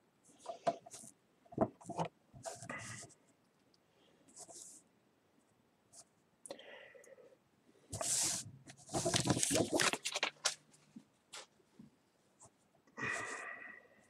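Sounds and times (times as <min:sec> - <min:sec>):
trading cards rustling and sliding: 0:08.0 - 0:10.6.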